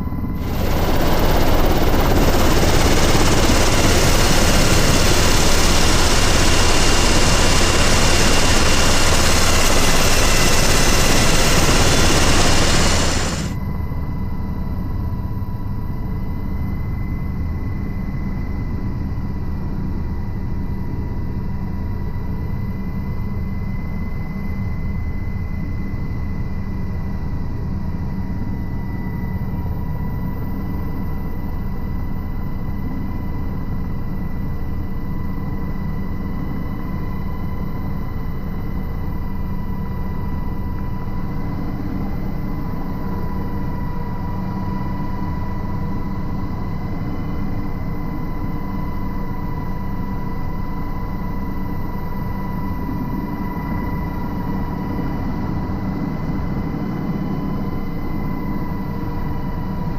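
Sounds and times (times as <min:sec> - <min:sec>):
steady high whine: 0:00.0 - 0:14.4
helicopter turbine and rotor drone: 0:00.0 - 0:59.9.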